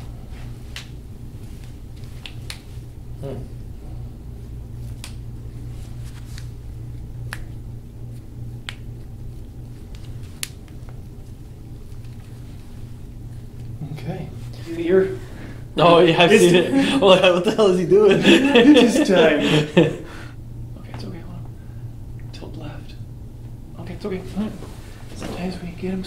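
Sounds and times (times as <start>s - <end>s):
steady low hum: 0.0s - 26.0s
hands kneading skin: 0.3s - 2.9s, 4.3s - 13.8s.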